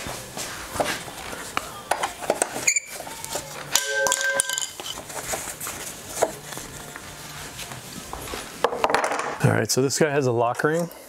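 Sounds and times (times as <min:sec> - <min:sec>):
metal tools clinking: 0:03.7 - 0:05.1
brief ringing tone: 0:03.8 - 0:04.7.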